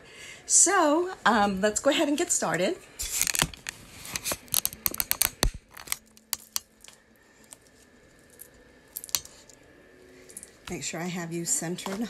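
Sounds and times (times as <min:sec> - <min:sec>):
phone handling clicks and knocks: 0:04.4 - 0:06.6.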